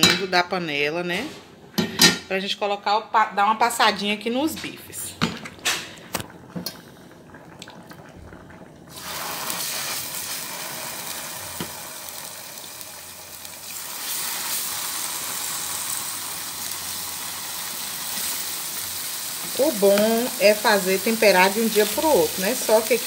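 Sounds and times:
meat sizzling in hot oil: 8.9s - 23.0s.

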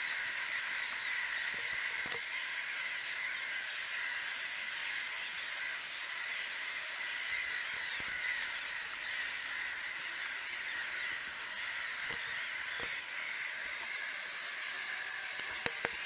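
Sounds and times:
gulls calling: 0.0s - 16.0s.

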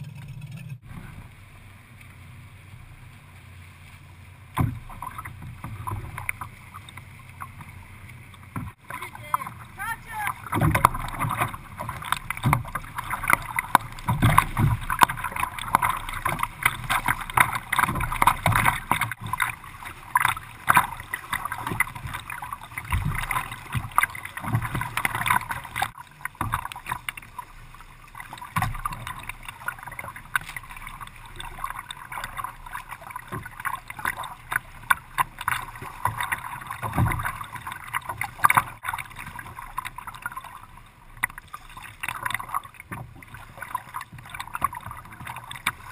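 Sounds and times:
water splashing against kayak hull: 0.0s - 45.9s
low knocks on hull: 4.5s - 6.3s, 10.4s - 19.4s.

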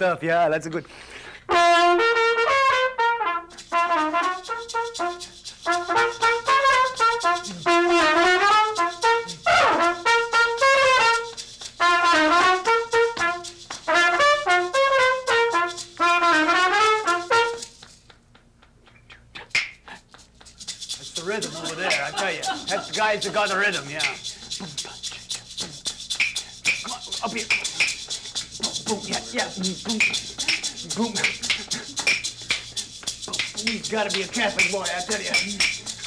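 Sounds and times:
trumpet playing a tune: 1.5s - 17.8s.

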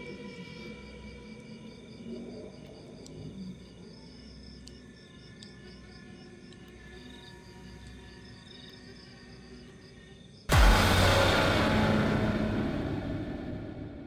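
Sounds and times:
crickets chirping: 0.0s - 10.5s.

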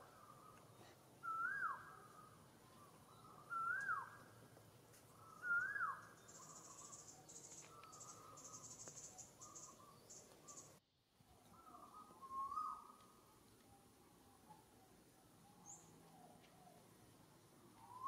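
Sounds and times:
whistled animal call: 1.2s - 2.2s, 3.2s - 4.2s, 5.4s - 6.9s, 11.6s - 13.0s
insects chirping: 5.3s - 10.8s.

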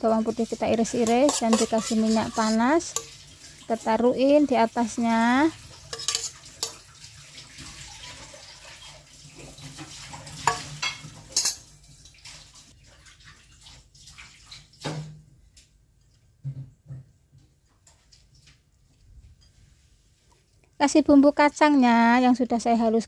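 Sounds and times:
plastic spatula in stone mortar: 0.2s - 3.1s
metal spoon clinking on bowl: 0.9s - 3.1s, 5.9s - 6.8s, 10.5s - 11.6s.

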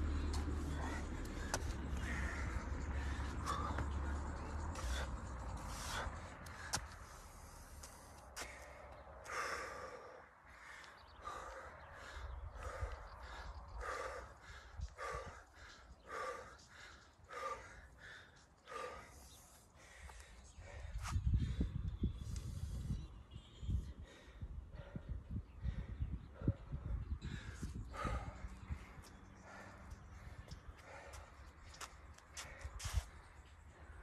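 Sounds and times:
low rumble: 0.0s - 8.1s
man breathing hard: 0.0s - 23.1s, 23.7s - 34.0s.

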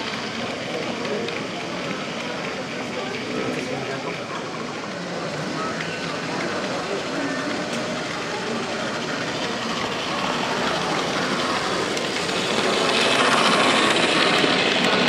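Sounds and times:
model train running on track: 0.0s - 15.0s.

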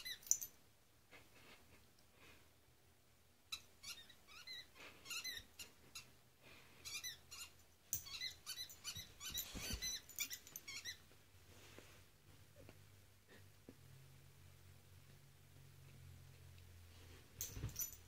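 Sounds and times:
squeaky toy ball squeaking: 0.0s - 0.3s, 3.5s - 6.1s, 6.8s - 11.1s.

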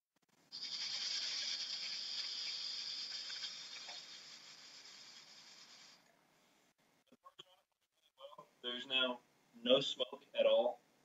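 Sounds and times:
hiss of air through hookah hose: 0.5s - 6.0s.

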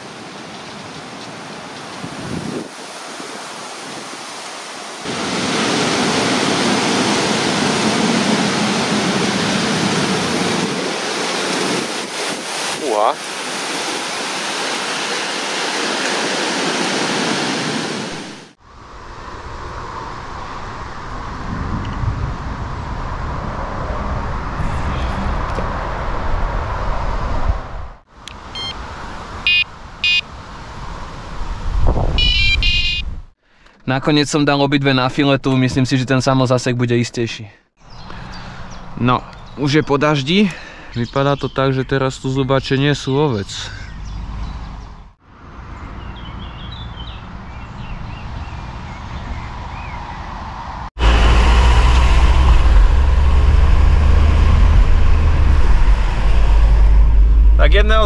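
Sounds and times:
heavy rain: 1.1s - 18.6s, 51.0s - 57.6s
wind buffeting microphone: 1.9s - 4.3s, 20.5s - 28.0s, 30.9s - 33.3s
high electronic beeps: 28.6s - 28.8s, 32.2s - 33.0s.

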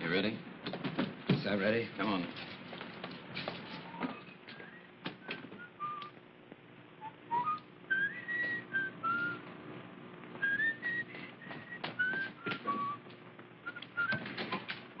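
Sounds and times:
person whistling a tune: 4.5s - 6.2s, 7.0s - 9.4s, 10.4s - 13.0s, 13.6s - 14.6s.

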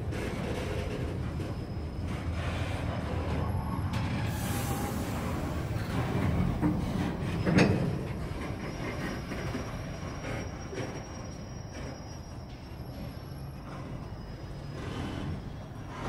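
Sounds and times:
freight train rolling on rails: 0.0s - 16.0s.

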